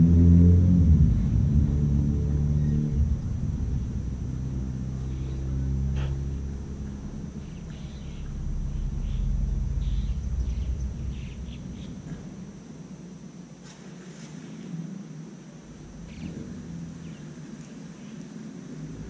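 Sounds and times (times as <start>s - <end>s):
low motor rumble: 0.0s - 13.6s, 15.6s - 19.0s
bird chirps: 4.9s - 12.4s.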